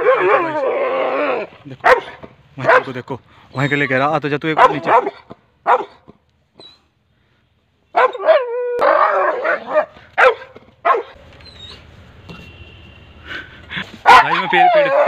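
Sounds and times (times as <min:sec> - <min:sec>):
dog barking: 0:01.8 - 0:02.9, 0:04.6 - 0:06.0, 0:07.9 - 0:08.4, 0:09.0 - 0:11.2, 0:14.0 - 0:14.6.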